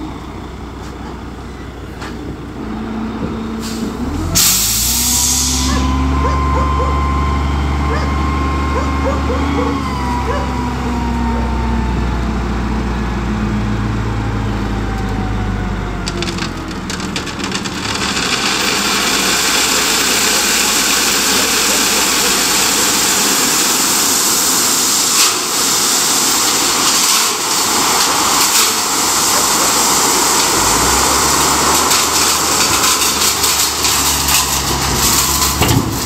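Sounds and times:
truck engine running: 0.0s - 36.0s
gravel pouring onto pile: 16.0s - 36.0s.

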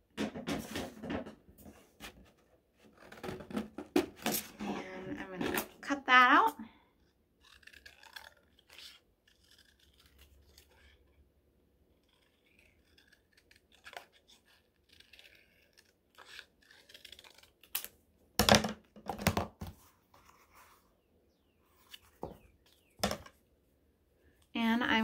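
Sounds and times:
scissors snipping paper: 6.3s - 11.1s, 11.9s - 17.9s.

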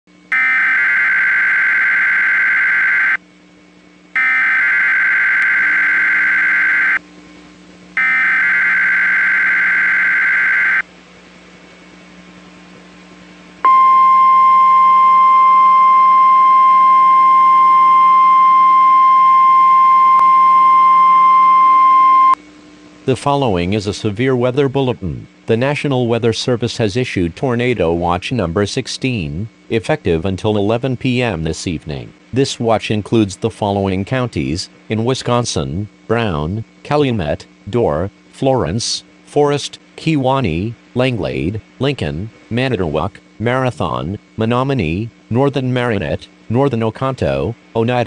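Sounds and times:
buzzy data bursts: 0.3s - 3.2s, 4.2s - 7.0s, 8.0s - 10.8s
high warning alarm tone: 0.3s - 3.2s, 4.2s - 7.0s, 8.0s - 10.8s.

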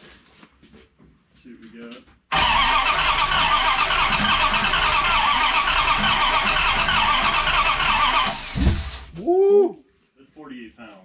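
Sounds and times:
engine starter cranking: 2.3s - 9.1s.

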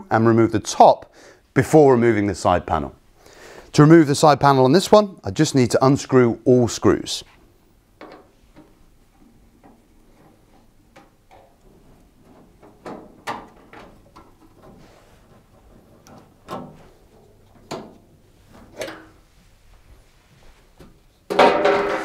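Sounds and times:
metal panel knocks and clatters: 21.3s - 22.0s.

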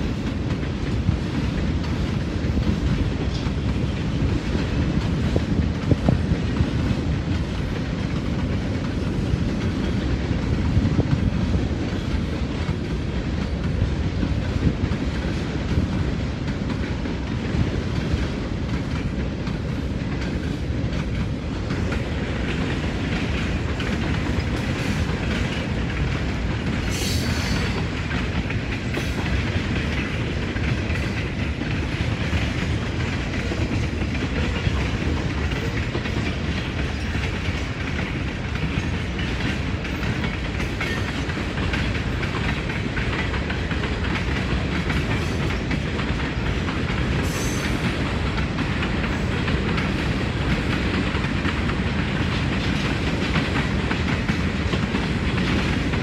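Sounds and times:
freight train rumbling past: 0.0s - 56.0s
wheels clacking over rail joints: 0.0s - 56.0s.

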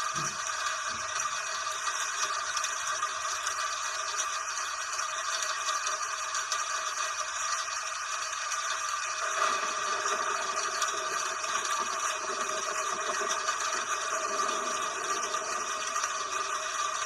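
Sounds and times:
steady rain: 9.2s - 17.0s.

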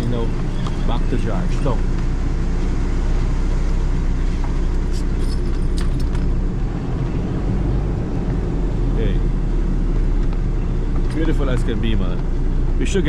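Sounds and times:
vehicle engine and road rumble: 0.0s - 13.0s
light rattles: 4.2s - 6.5s.

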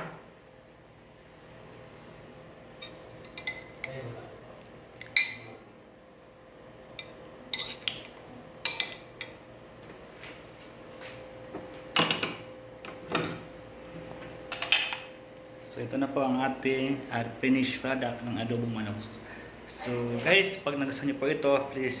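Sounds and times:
faint steady hum: 0.0s - 22.0s
spoon and dishes clinking: 2.8s - 4.0s, 5.0s - 5.6s, 6.9s - 9.4s
dishes clattering: 12.0s - 12.4s, 14.5s - 15.1s.

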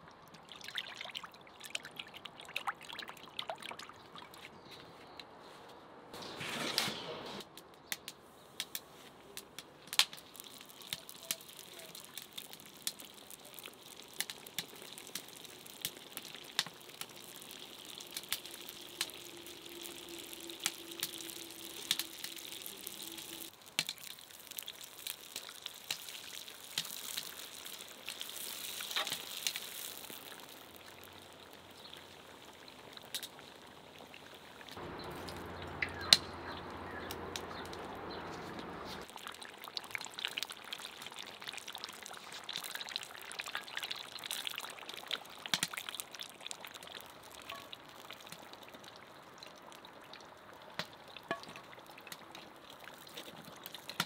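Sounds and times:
food sizzling in hot oil: 9.9s - 36.1s, 39.0s - 49.8s.

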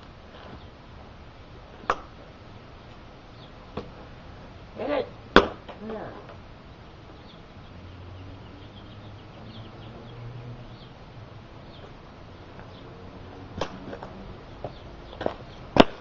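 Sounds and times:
low hum: 0.0s - 16.0s
faint bird chirps: 6.6s - 11.0s.

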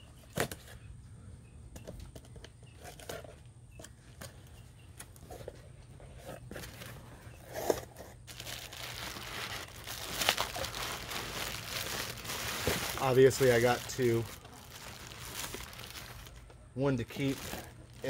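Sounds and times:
plastic packing crinkling: 8.2s - 18.0s.

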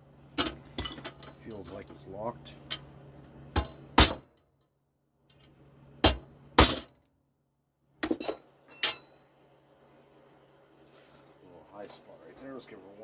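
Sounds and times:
light metallic clinks: 0.8s - 1.8s.

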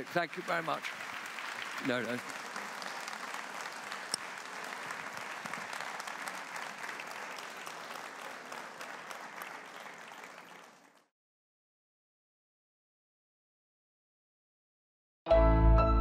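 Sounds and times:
large audience applauding: 0.0s - 11.1s.

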